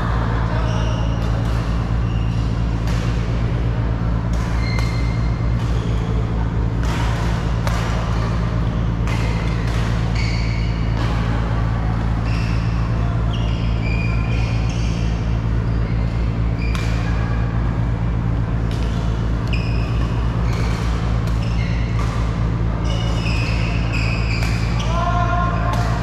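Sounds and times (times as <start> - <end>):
loud steady low hum: 0.0 - 26.0
racket hitting shuttlecock: 1.1 - 11.4, 16.5 - 17.9, 18.6 - 26.0
shoes squeaking on floor: 4.6 - 6.1, 10.1 - 10.9, 18.8 - 20.7, 21.4 - 22.0, 22.8 - 25.0.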